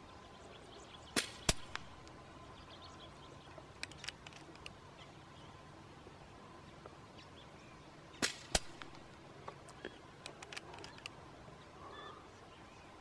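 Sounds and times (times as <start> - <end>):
air rifle sharp crack: 1.2 - 1.9, 8.2 - 9.0.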